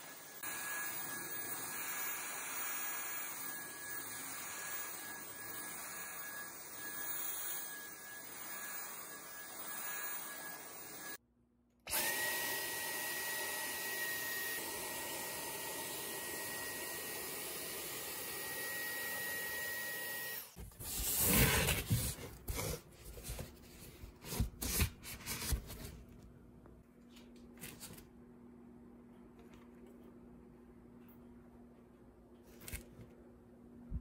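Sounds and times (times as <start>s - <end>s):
vacuum cleaner whining: 0.0s - 11.2s, 11.8s - 22.8s.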